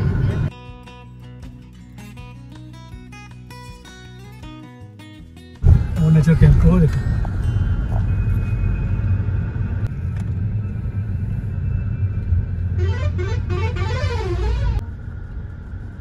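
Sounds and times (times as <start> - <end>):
road rumble inside moving car: 0.0 - 0.5, 5.6 - 16.0
warbling lorry horn: 11.7 - 14.9.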